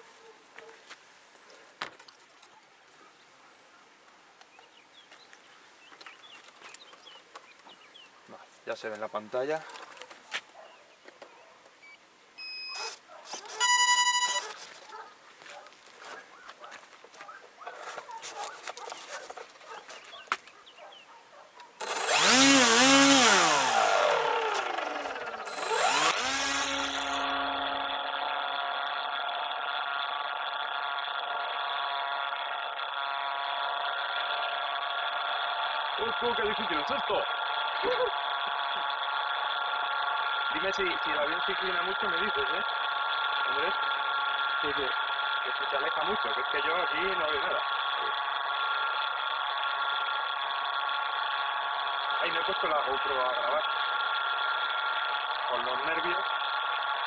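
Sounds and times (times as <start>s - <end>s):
small birds chirping: 2.4s - 8.7s, 9.8s - 13.0s, 14.8s - 21.8s
electric motor and propeller whine: 12.7s - 14.9s, 21.8s - 40.6s, 42.2s - 57.0s.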